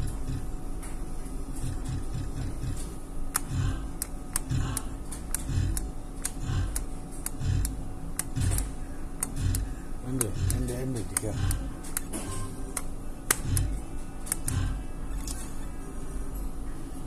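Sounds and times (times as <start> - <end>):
slot machine reels ticking: 3.4 - 11.7.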